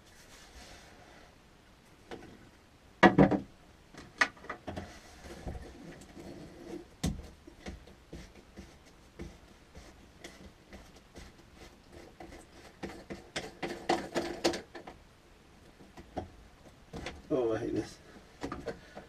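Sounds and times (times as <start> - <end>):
clicks and knocks of handling: 12.0 - 15.0, 18.4 - 19.0.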